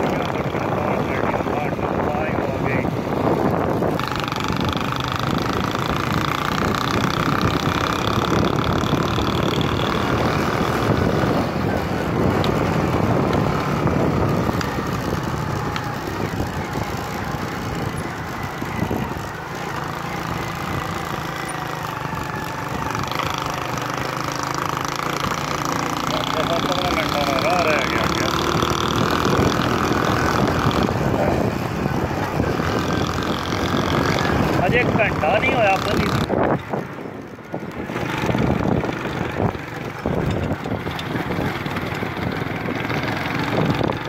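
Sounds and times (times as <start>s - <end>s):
road noise on dirt track: 0.0s - 44.0s
vehicle engine running: 0.0s - 44.0s.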